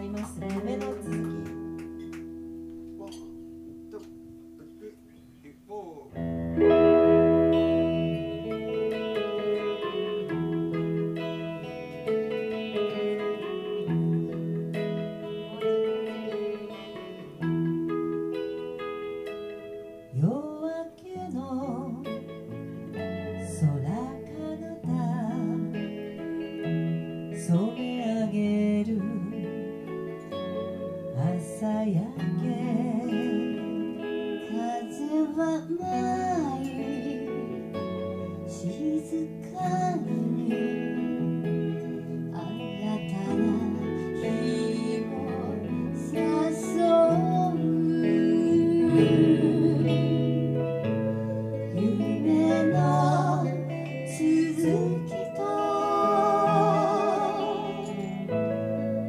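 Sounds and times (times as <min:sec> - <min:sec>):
guitars playing: 0:00.0 - 0:59.0
women singing duet: 0:27.4 - 0:29.5, 0:31.1 - 0:37.5, 0:38.4 - 0:41.4, 0:42.0 - 0:58.5.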